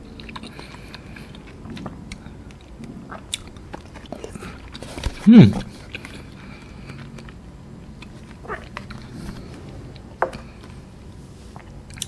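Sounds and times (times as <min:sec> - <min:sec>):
low steady hum: 0:00.0 - 0:12.0
wet mouth chewing clicks: 0:00.1 - 0:04.8, 0:11.6 - 0:12.0.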